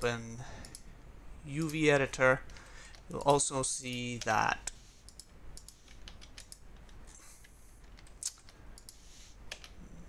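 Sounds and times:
mouse and keyboard clicks: 5.0s - 9.8s.

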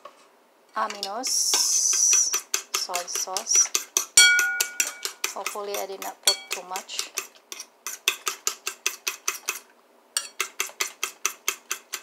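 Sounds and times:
fork beating eggs in bowl: 0.8s - 12.0s.

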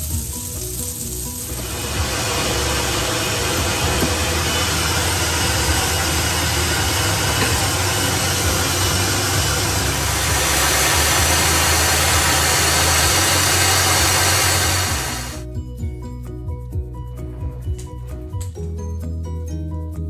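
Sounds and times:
food processor motor whirring: 0.0s - 15.4s.

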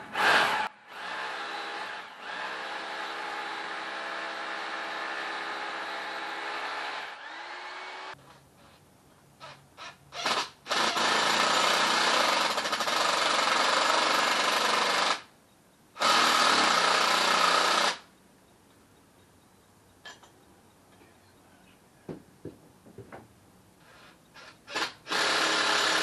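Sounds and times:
hammer drill boring into concrete: 24.4s - 26.0s.

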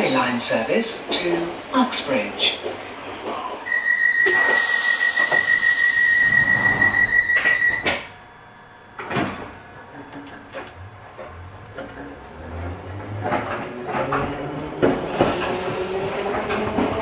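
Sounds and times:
sliding train doors shutting: 2.6s - 17.0s
high warning tone: 3.7s - 8.1s.

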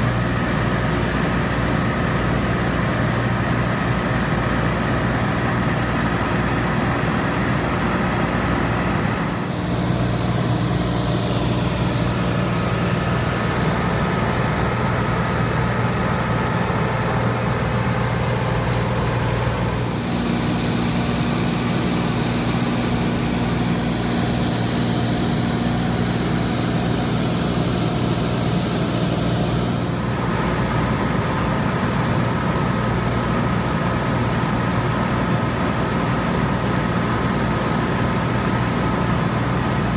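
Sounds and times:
plane engine droning: 0.0s - 34.0s
rushing air noise: 8.6s - 31.0s.

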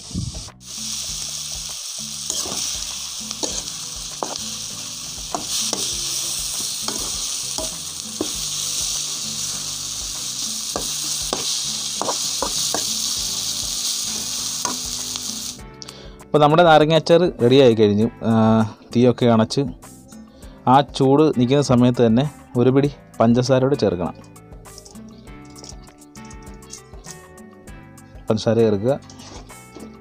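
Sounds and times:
pickle sizzling in a metal pan: 0.0s - 15.6s, 23.9s - 27.3s, 28.8s - 30.0s
metal spatula scraping a pan: 2.2s - 4.5s, 5.2s - 9.5s, 29.0s - 30.0s.

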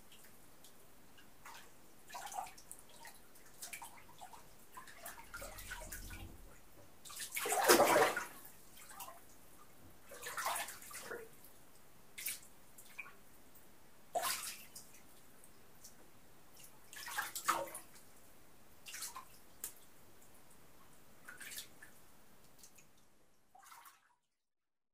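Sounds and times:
faint water drips: 0.0s - 24.2s
water splashing in bathtub: 1.4s - 9.2s, 10.1s - 11.4s, 14.2s - 14.8s, 16.9s - 18.0s, 23.5s - 24.1s.

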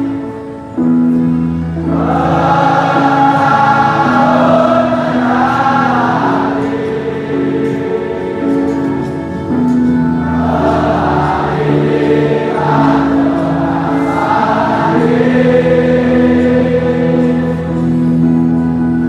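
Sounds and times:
stadium crowd chanting: 1.9s - 8.8s, 10.3s - 17.9s.

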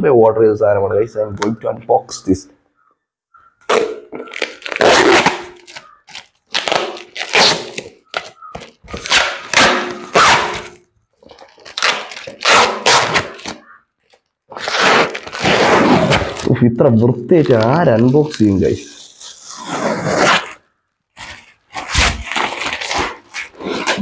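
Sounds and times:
tape ripping off cardboard box: 3.7s - 13.8s, 14.5s - 16.5s, 17.4s - 20.6s, 21.2s - 24.0s.

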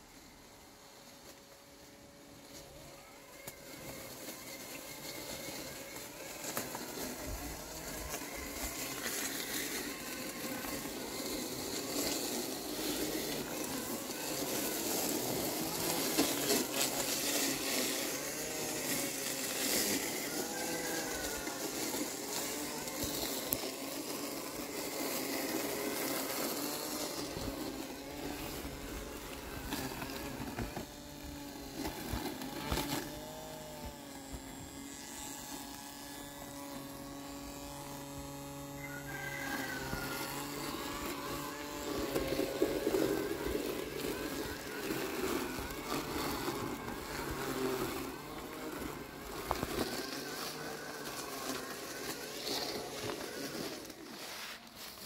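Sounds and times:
robot lawn mower motors whining: 0.0s - 55.0s.

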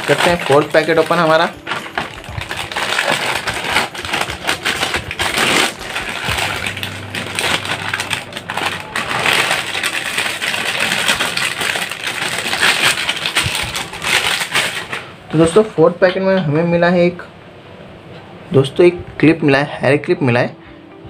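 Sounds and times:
foil snack packet crinkling: 0.0s - 15.1s.

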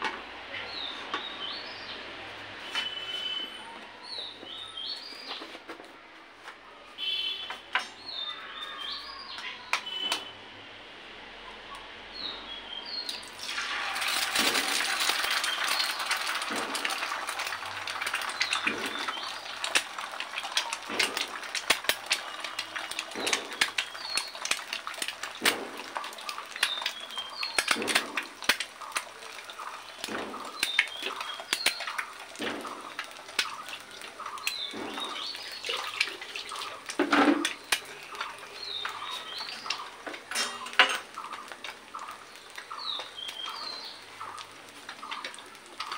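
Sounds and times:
egg sizzling in a pan: 13.2s - 45.9s
fat popping: 18.0s - 43.6s.

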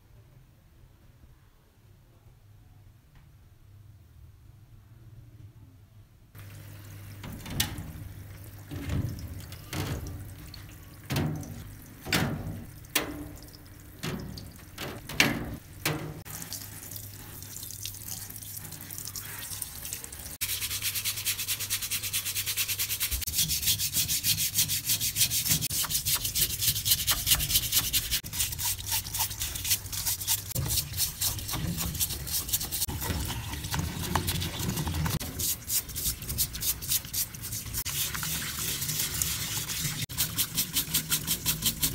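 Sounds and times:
bristle brush scrubbing metal: 7.2s - 13.4s, 20.4s - 41.9s.

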